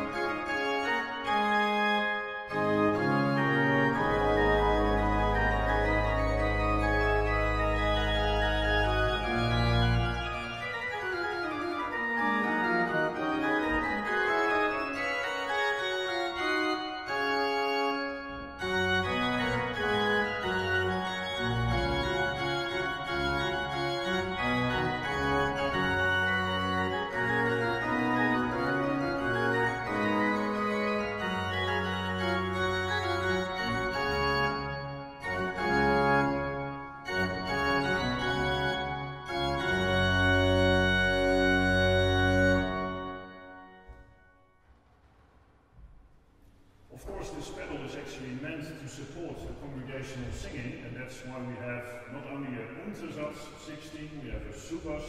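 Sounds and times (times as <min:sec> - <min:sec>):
pipe organ playing: 0:00.0 - 0:44.7, 0:46.9 - 0:55.0.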